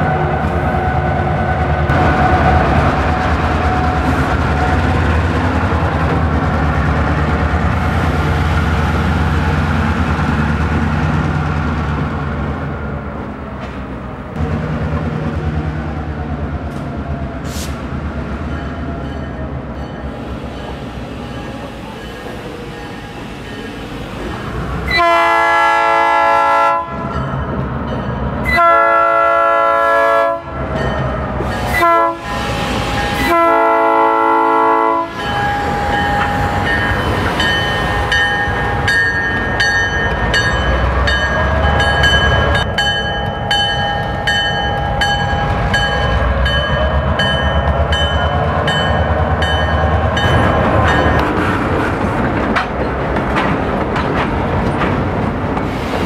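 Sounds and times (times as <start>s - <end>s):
diesel locomotives rumbling: 0.0s - 56.0s
train air horn blasts: 24.9s - 27.0s, 28.5s - 30.5s, 31.7s - 35.3s.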